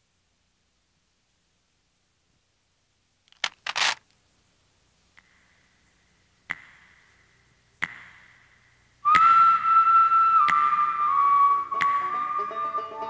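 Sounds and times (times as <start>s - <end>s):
plastic device handled: 3.3s - 4.1s
sharp clicks: 3.3s - 4.2s.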